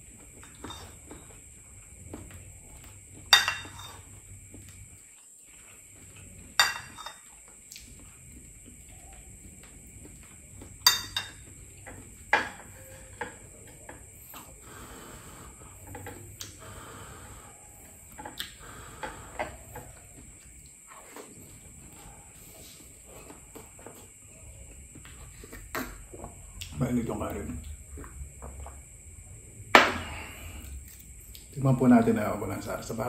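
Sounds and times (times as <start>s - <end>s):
spoon clinking on ceramic dishes: 3.3s - 4.0s, 6.6s - 7.3s, 10.8s - 11.5s.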